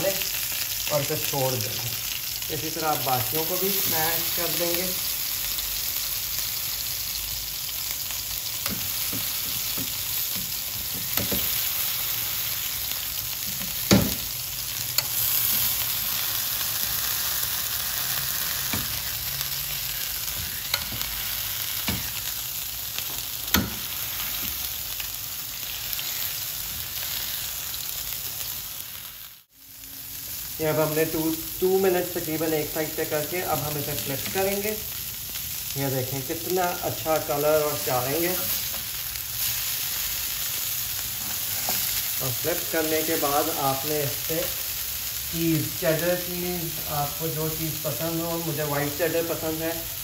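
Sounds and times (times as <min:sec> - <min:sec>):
beef patties sizzling in oil: 0:00.0 - 0:50.0
spatula knocking on griddle: 0:08.6 - 0:11.5, 0:13.5 - 0:14.3.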